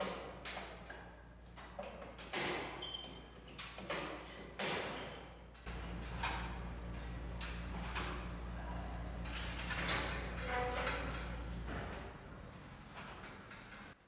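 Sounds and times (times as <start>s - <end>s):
knocks and clatters of parts: 0.0s - 14.0s
steady low hum: 5.7s - 14.0s.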